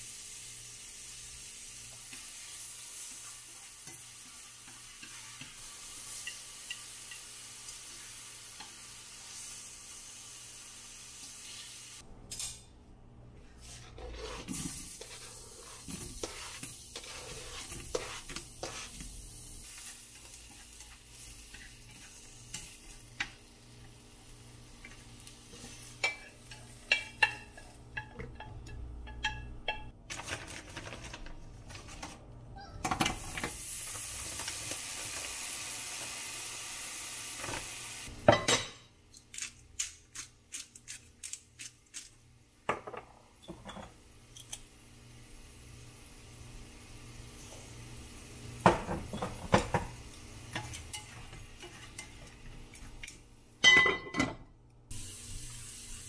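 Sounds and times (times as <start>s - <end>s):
vegetables sizzling in a pan: 0.0s - 12.0s, 14.4s - 27.8s, 33.1s - 38.2s, 43.9s - 53.4s, 54.9s - 56.0s.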